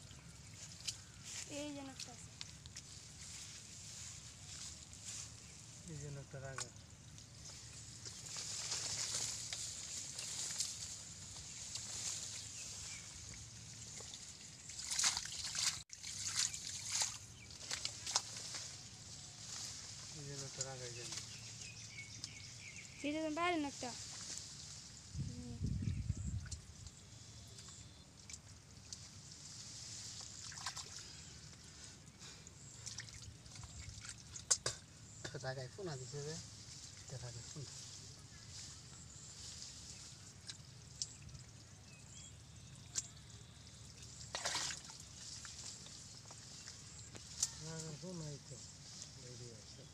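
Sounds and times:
muddy water dripping and trickling: 0.0 - 21.3, 26.1 - 37.4, 39.9 - 47.6
small splashes: 7.6 - 18.8, 27.6 - 31.7, 32.6 - 35.0, 42.8 - 47.5
hands splashing in water: 14.0 - 18.4, 30.3 - 31.0, 44.2 - 45.6.

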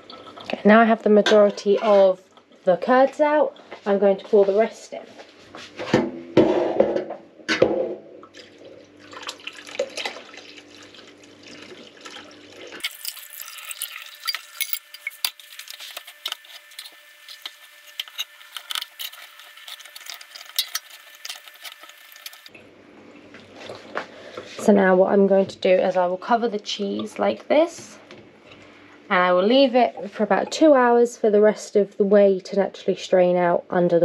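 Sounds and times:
liquid splashing into sieve: 8.3 - 14.5
metal spoon scraping and tapping: 13.5 - 22.5.

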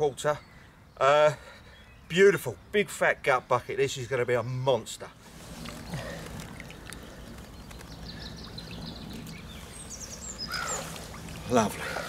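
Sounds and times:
small birds chirping: 0.0 - 12.0
water sloshing and trickling: 5.2 - 12.0.

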